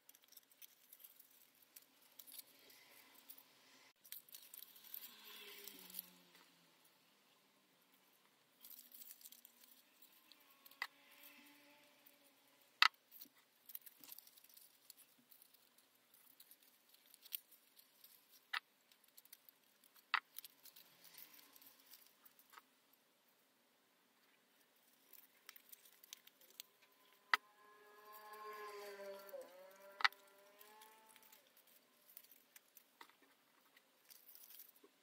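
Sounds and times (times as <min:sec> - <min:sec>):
paper rustling and scratching: 0:00.0 - 0:03.4, 0:08.6 - 0:12.2, 0:13.1 - 0:22.7, 0:28.0 - 0:35.0.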